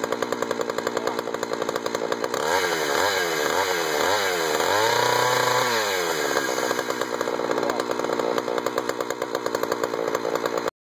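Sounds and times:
chainsaw engine running: 0.0s - 10.7s.

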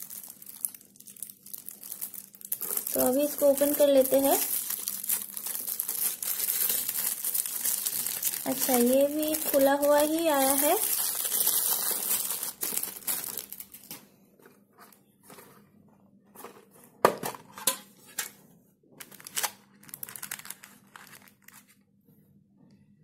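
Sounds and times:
plastic wrap crinkling: 0.0s - 14.1s, 19.0s - 21.8s.

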